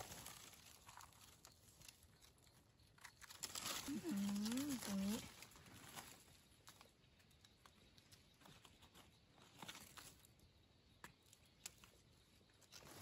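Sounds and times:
hands rustling in dry leaves: 0.0 - 2.0, 3.2 - 6.9.

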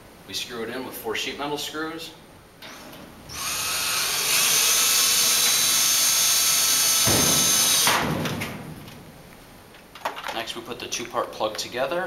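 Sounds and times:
cordless drill driving screws: 2.7 - 8.0.

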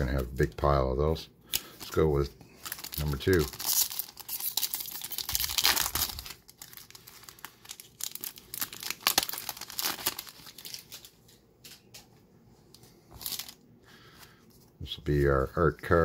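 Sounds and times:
foil wrapper tearing and crinkling: 1.5 - 11.2, 13.1 - 13.6.

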